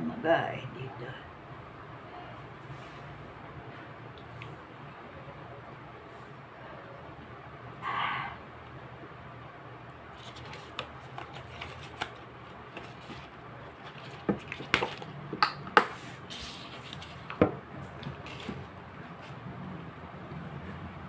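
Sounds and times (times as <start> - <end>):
hands picking fruit clicking: 10.2 - 16.0.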